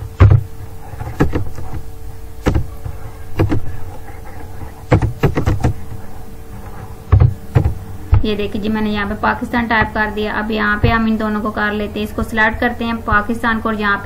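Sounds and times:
faint steady hum: 0.0 - 14.0
keyboard typing clicks: 4.9 - 5.8.

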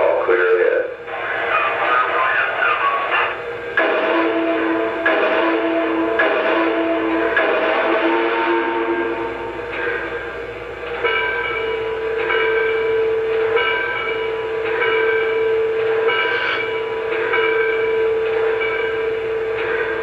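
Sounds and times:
steam hissing pulses: 1.0 - 12.4, 15.9 - 17.6.

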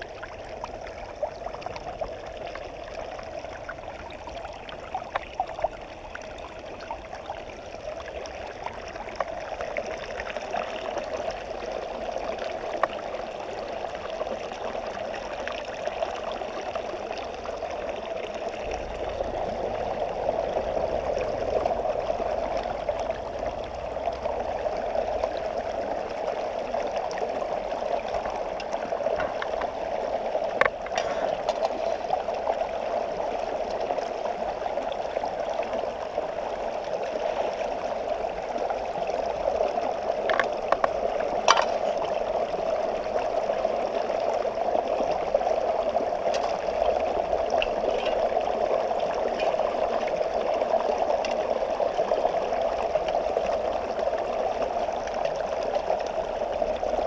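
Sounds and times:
rocky river flowing: 25.2 - 57.0.

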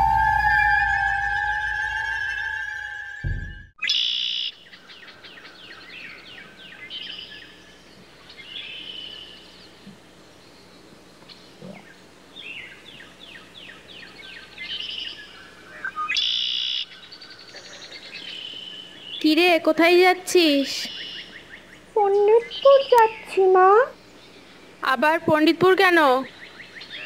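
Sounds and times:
eerie music chord: 0.0 - 2.6
songbirds chirping and trilling: 0.5 - 27.0.

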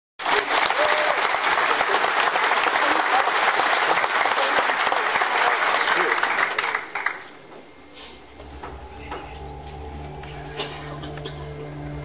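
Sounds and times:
audience applauding: 0.2 - 7.4
faint low hum: 6.0 - 12.0.

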